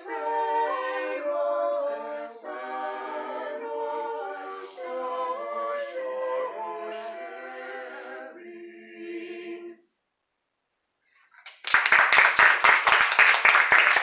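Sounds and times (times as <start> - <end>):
a cappella choir singing: 0.0 - 9.9
audience applause: 11.4 - 14.0.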